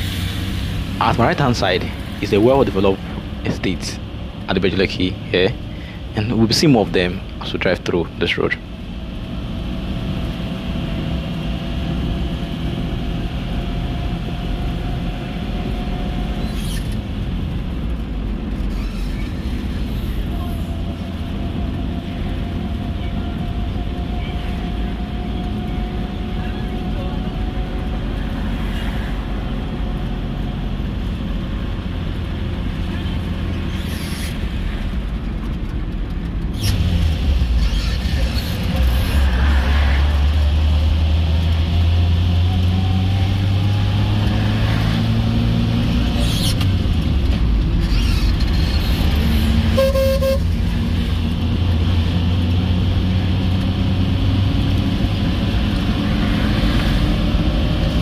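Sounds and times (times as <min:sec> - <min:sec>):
car engine and road noise: 0:00.0 - 0:58.0
car horn toot: 0:49.7 - 0:50.6.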